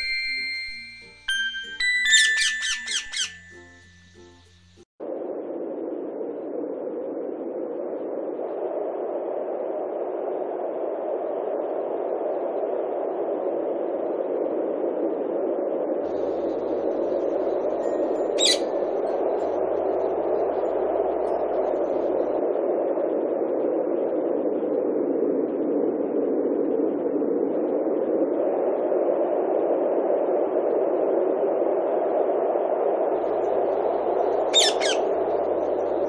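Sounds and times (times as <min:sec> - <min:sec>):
faint high chirps: 0:00.0 - 0:04.6, 0:34.5 - 0:35.1
parrot screeching: 0:02.1 - 0:03.5, 0:18.4 - 0:18.6, 0:34.5 - 0:35.0.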